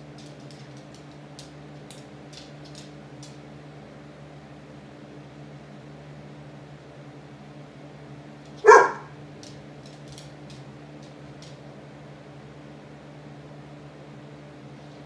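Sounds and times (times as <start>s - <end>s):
box fan humming: 0.0s - 15.0s
dog barking: 8.6s - 9.2s.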